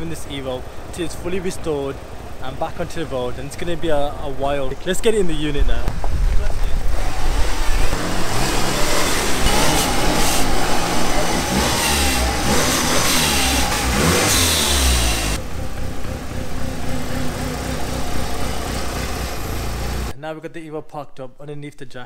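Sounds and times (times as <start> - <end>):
car engine revving: 6.4 - 20.2.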